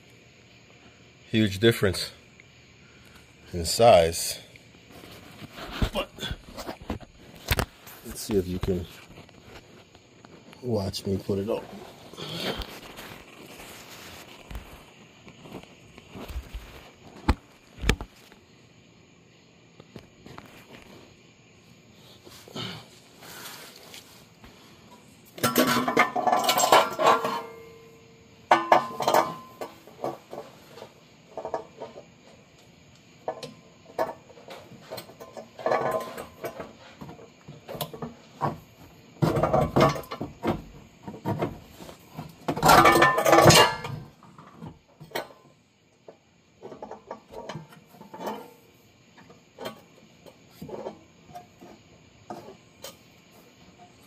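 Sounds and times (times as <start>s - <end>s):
exhaust pipe clanking against metal: 25.4s - 27.8s, 28.5s - 30.5s, 42.5s - 44.1s.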